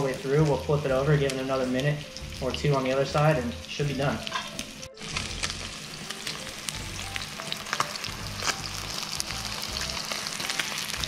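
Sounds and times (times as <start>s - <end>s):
fish fillet sizzling in oil: 0.0s - 11.0s.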